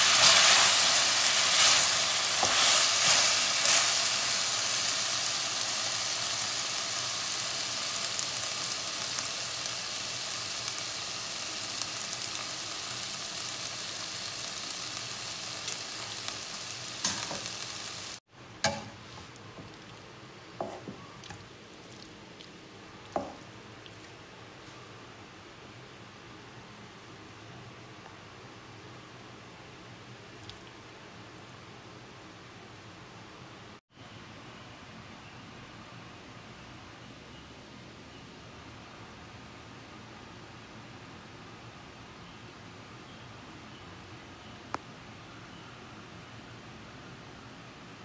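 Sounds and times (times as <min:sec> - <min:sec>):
meat and onions sizzling in a pan: 0:00.0 - 0:19.2
faint hiss: 0:00.0 - 0:19.4.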